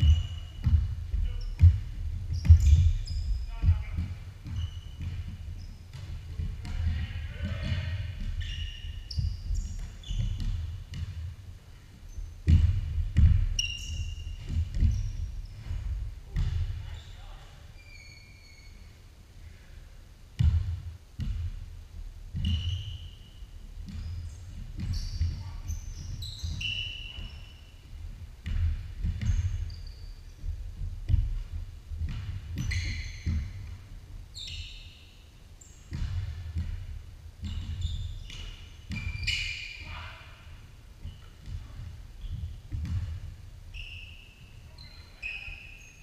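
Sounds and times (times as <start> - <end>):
basketball bouncing on wooden floor: 0.0 - 16.9, 20.4 - 21.6, 22.3 - 23.0, 23.7 - 34.0, 35.8 - 39.6, 41.0 - 43.5
sneaker squeaks: 0.0 - 19.1, 22.3 - 46.0.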